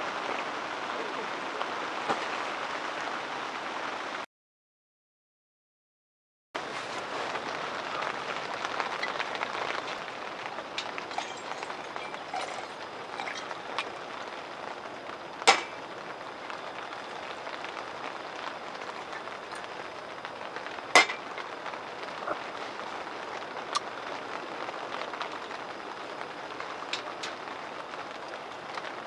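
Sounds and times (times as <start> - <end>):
steady hiss: 6.6 - 29.0
liquid pouring into steel tumbler: 10.8 - 14.2
glass clinking on metal rack: 11.1 - 13.5, 15.5 - 15.8, 21.0 - 21.4.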